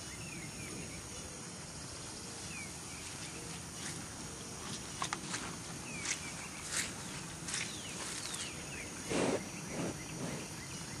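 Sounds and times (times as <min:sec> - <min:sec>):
birds chirping: 0:05.8 - 0:11.0.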